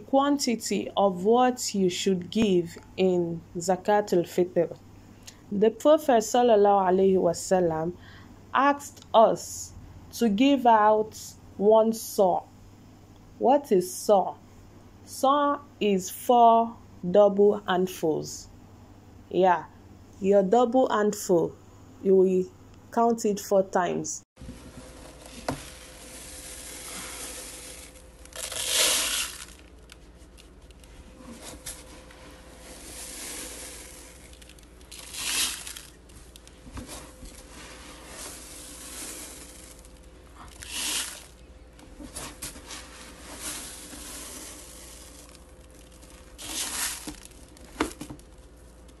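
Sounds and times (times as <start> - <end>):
grain shuffling: 24.6 - 48.5
rice grains pouring into bowl: 25.2 - 29.7, 32.6 - 36.0, 38.0 - 41.4, 43.2 - 47.6.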